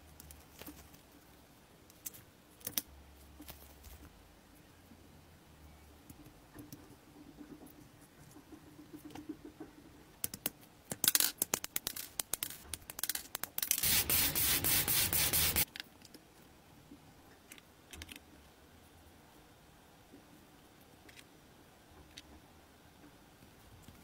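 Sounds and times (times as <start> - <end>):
plastic parts clicking: 10.2 - 13.8, 17.5 - 18.2
loud scratching and rubbing: 13.8 - 15.7.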